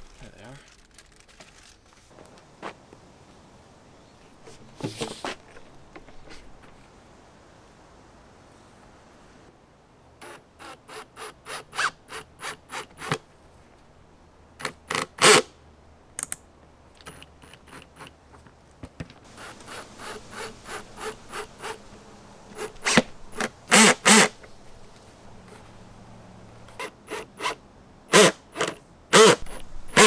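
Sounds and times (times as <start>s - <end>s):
cordless drill driving screws: 19.4s - 21.8s, 22.5s - 24.4s, 26.7s - 30.0s.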